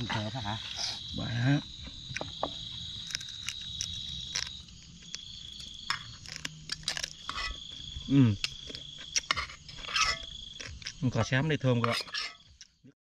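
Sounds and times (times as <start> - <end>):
night insects trilling: 0.0 - 12.9.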